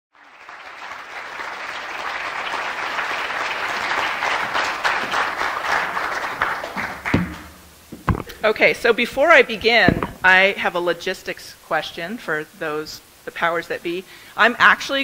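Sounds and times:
audience applauding: 0.2s - 7.5s.

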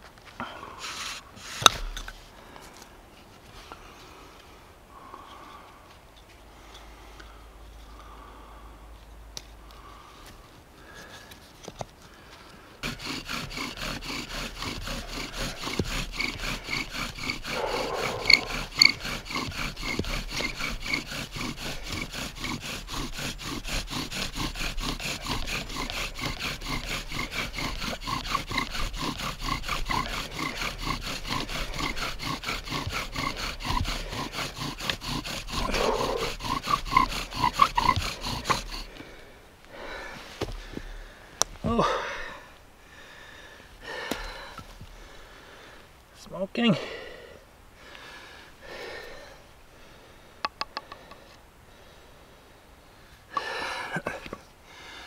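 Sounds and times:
wooden spindle grinding and squeaking: 12.8s - 39.0s, 50.4s - 51.4s.

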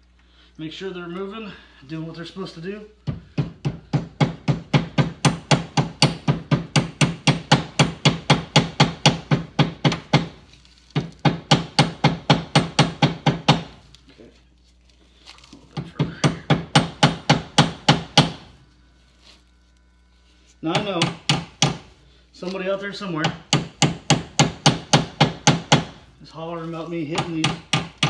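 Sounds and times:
hammer tapping: 3.0s - 10.4s, 11.0s - 13.8s, 15.7s - 18.5s, 20.7s - 22.6s, 23.2s - 26.0s, 27.0s - 28.0s.

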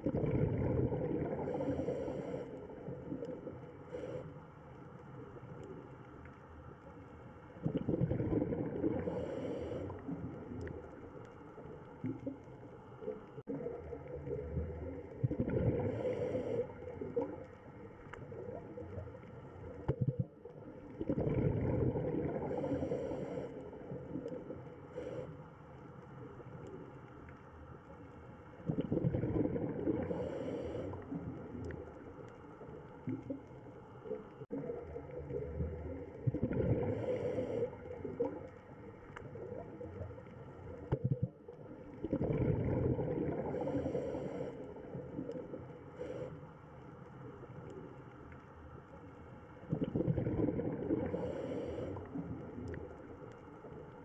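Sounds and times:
diver exhaling bubbly gurgle: 0.0s - 3.6s, 7.6s - 10.8s, 13.4s - 17.4s, 19.8s - 24.6s, 28.6s - 31.6s, 34.5s - 38.5s, 40.9s - 45.6s, 49.7s - 52.8s
underwater rumble: 0.0s - 54.0s.

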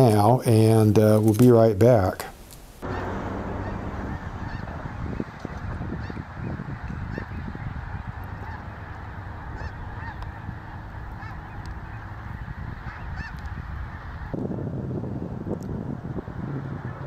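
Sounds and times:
geese honking: 2.8s - 14.4s
wind rumble on microphone: 2.8s - 17.0s.

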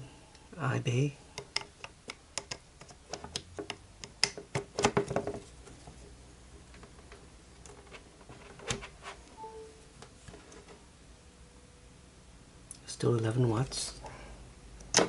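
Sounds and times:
plastic clicks and rattles: 1.4s - 5.4s.

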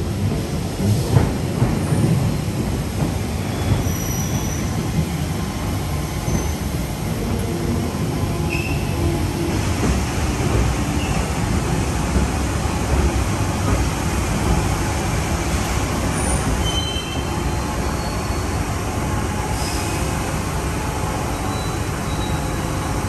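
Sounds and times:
train rumbling: 0.0s - 23.0s
train wheel squeals: 3.4s - 4.9s, 8.4s - 9.2s, 16.2s - 18.7s, 21.3s - 22.8s.

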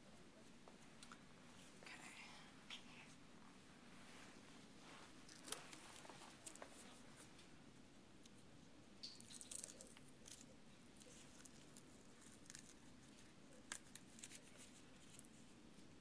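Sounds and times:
film dressing crinkling and rustling: 4.2s - 7.5s, 9.0s - 16.0s.

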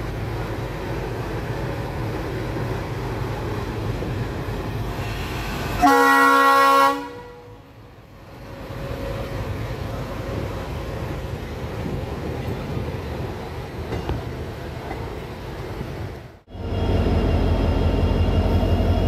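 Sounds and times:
train rumbling: 0.0s - 19.0s
locomotive air horn blast: 5.0s - 7.6s.

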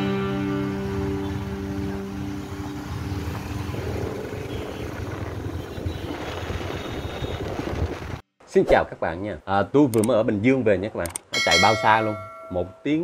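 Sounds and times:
road noise: 0.0s - 8.2s
motorbike engine: 0.8s - 7.9s
wind buffeting microphone: 1.8s - 8.2s.

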